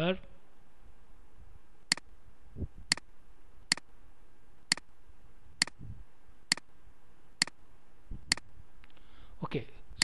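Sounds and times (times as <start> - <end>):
faint steady hiss: 0.0 - 10.0
sharp short clicks: 1.9 - 2.1, 2.9 - 3.1, 3.7 - 3.9, 4.7 - 4.9, 5.6 - 5.8, 6.5 - 6.7, 7.4 - 7.6, 8.3 - 8.5.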